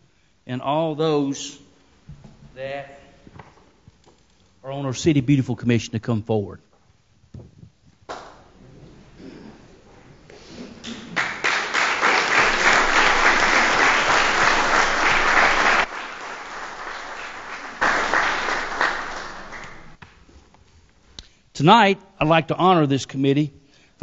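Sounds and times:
audience applauding: 10.8 - 20.0.

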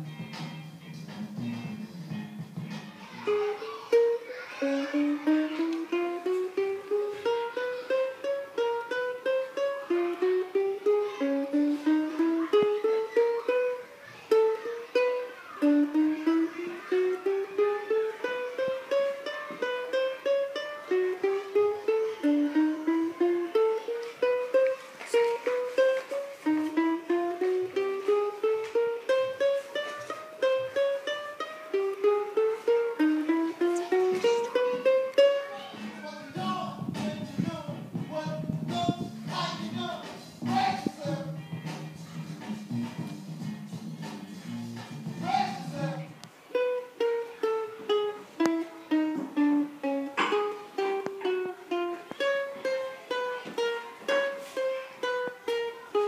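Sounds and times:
ukulele picked single notes: 0.0 - 56.0.

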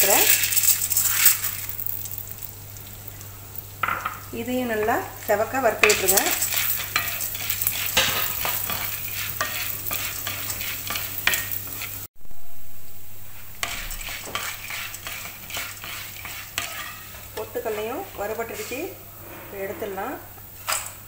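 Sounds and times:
light sizzle: 0.0 - 21.0
wooden spatula scraping pan: 5.8 - 12.1, 13.6 - 20.3.

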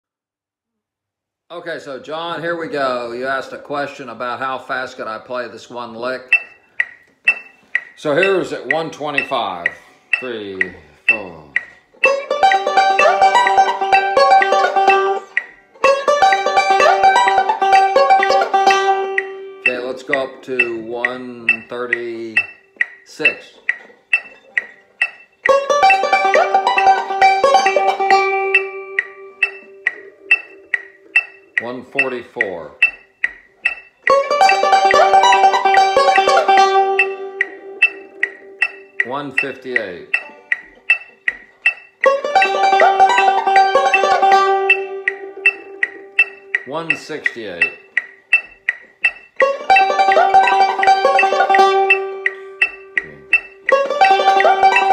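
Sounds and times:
man speaking: 1.5 - 6.4, 8.0 - 11.8, 19.7 - 23.7, 31.6 - 32.9, 39.0 - 40.4, 46.6 - 48.0, 53.0 - 53.4
banjo picking: 1.5 - 54.9
metronome clicking: 2.0 - 54.9.

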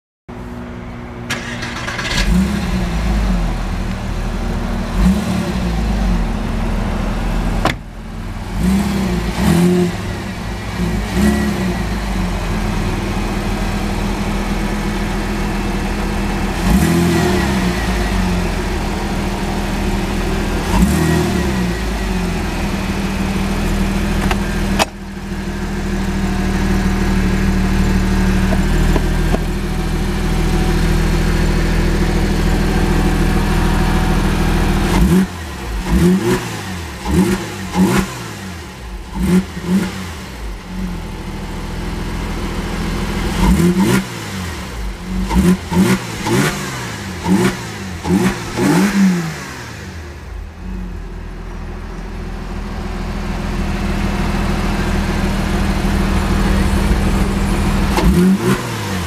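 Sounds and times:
car engine idling and revving: 0.3 - 59.0
sharp knocks: 7.6 - 7.9.

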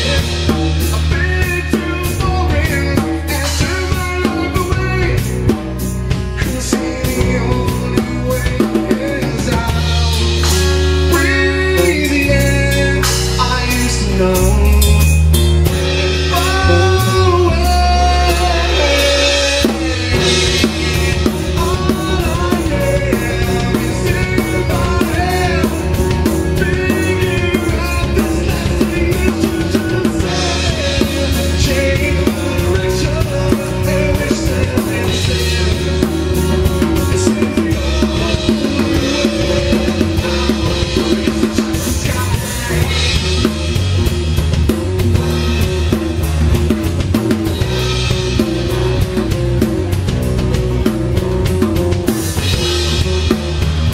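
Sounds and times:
person singing: 0.0 - 44.1
bass guitar: 0.0 - 53.9
drum kit steady beat: 0.0 - 53.9.

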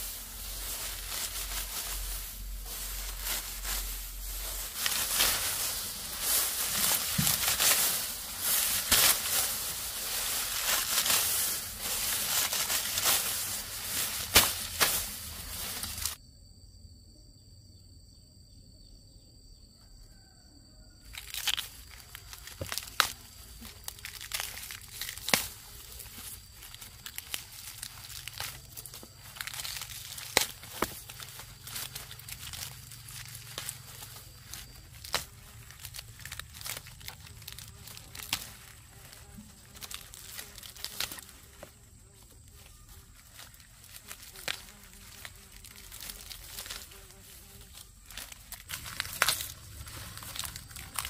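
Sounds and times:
dry leaves rustling and crackling: 0.0 - 16.2, 21.1 - 51.0
stalks snapping: 4.7 - 16.2, 21.1 - 41.7, 43.3 - 47.0, 47.7 - 51.0.

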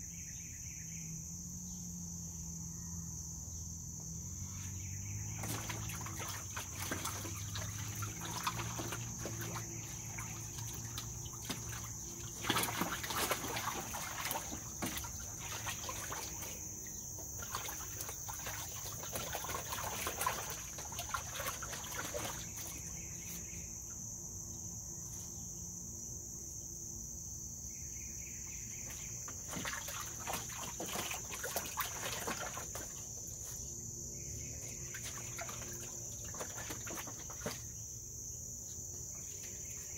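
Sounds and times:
crickets chirring: 0.0 - 39.9
animal splashing in water: 5.0 - 23.1, 28.9 - 33.6, 34.6 - 37.8.

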